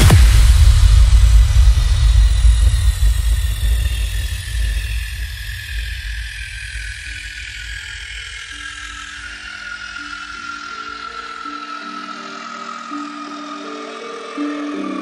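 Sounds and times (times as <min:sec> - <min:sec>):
quadcopter motors whining: 0:03.6 - 0:15.0.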